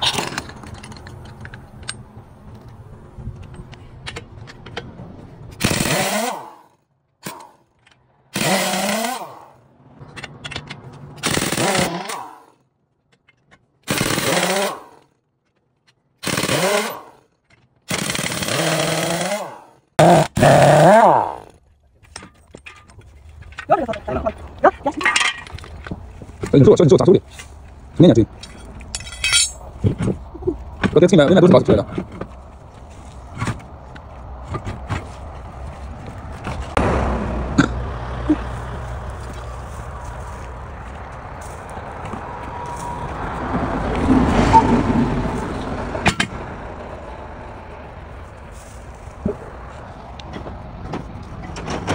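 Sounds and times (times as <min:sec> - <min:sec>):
low road rumble: 0:00.0 - 0:51.9
pneumatic impact wrench hammering: 0:05.5 - 0:07.6, 0:08.3 - 0:09.5, 0:10.4 - 0:12.5, 0:13.8 - 0:15.1, 0:16.2 - 0:17.2, 0:17.9 - 0:21.4.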